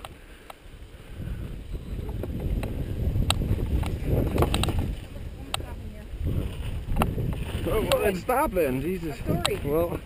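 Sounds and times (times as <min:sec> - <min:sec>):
wind on microphone: 0:00.6 - 0:10.0
bike clicks and rattles: 0:02.0 - 0:05.7.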